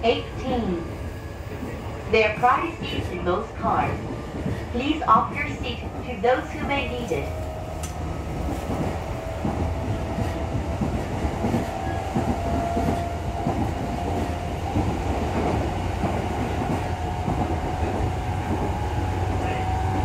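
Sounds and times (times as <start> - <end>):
train wheels rumbling on rail: 0.0 - 20.0
rail-joint clicks: 7.7 - 18.8.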